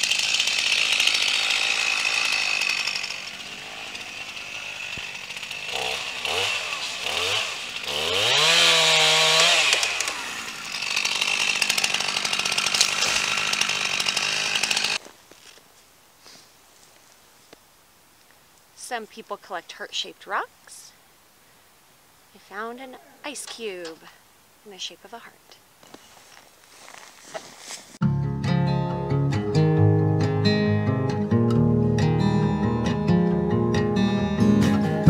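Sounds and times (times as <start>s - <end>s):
chainsaw cutting tree trunk: 0.0s - 15.0s.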